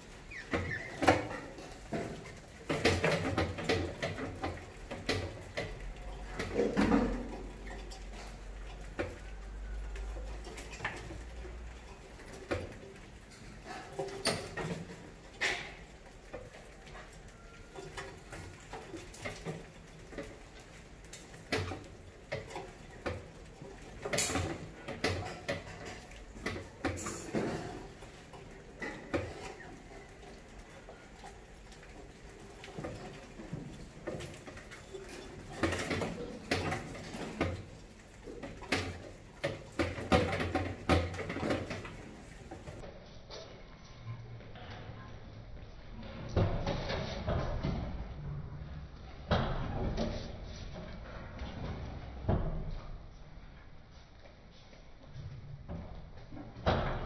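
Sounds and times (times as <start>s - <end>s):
mice scrabbling on glass and cans: 0.0s - 42.8s.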